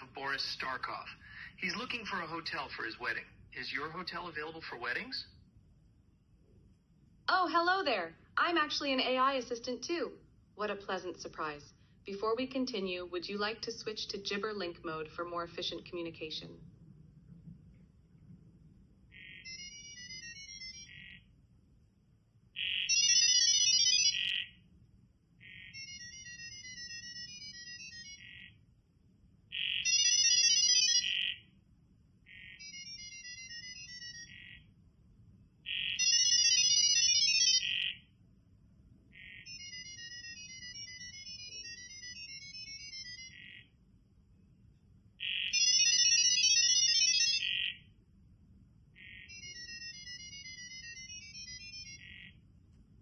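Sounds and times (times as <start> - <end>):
rapid high-pitched beeping tones: 19.2 - 21.3, 22.6 - 24.6, 25.4 - 28.6, 29.6 - 31.4, 32.3 - 34.6, 35.7 - 38.0, 39.2 - 43.7, 45.2 - 47.8, 49.1 - 52.4.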